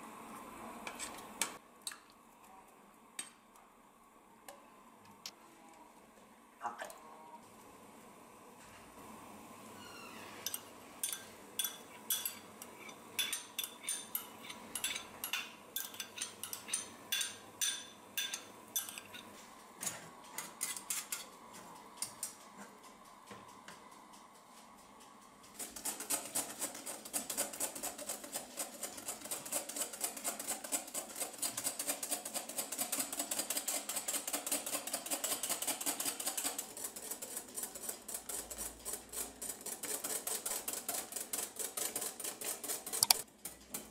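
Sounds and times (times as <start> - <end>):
wire whisk beating in glass bowl: 10.5 - 19.2
utensil clinking in saucepan: 10.5 - 19.3.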